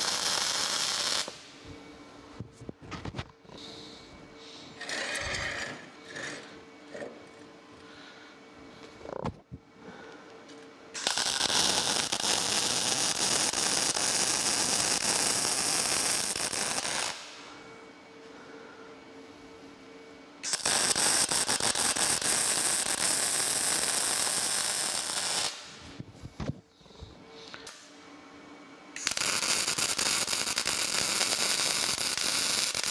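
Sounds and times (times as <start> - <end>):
welder arc crackling sizzle: 0.0 - 1.6, 11.0 - 17.5, 20.4 - 26.0, 29.0 - 32.9.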